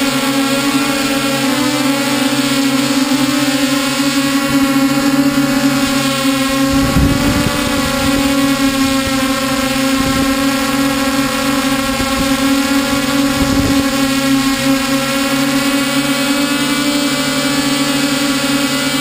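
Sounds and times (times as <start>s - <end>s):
drone propellers humming: 0.0s - 19.0s
wind buffeting microphone: 5.7s - 15.8s.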